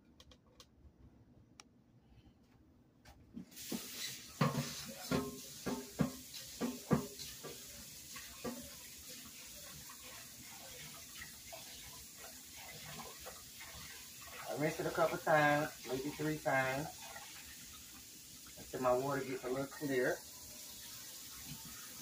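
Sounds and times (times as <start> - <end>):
tap water running into metal pot: 3.5 - 22.0
pot clanking in sink: 3.8 - 8.9.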